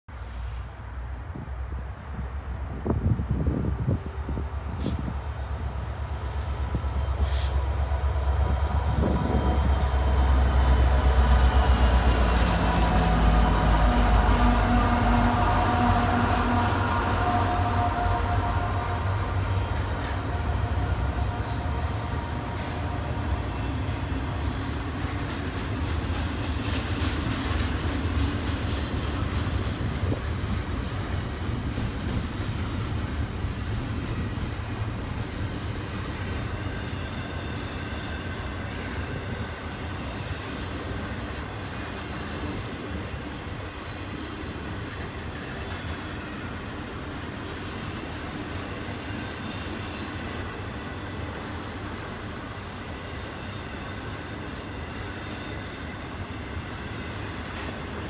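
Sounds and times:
diesel locomotive engine rumble: 0.1 - 58.0
train wheels clickety-clack: 4.7 - 18.7, 19.7 - 58.0.

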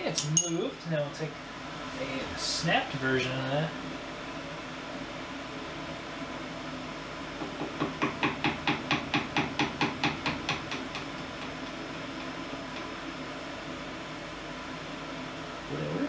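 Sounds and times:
hammer tapping on metal: 7.4 - 13.0.

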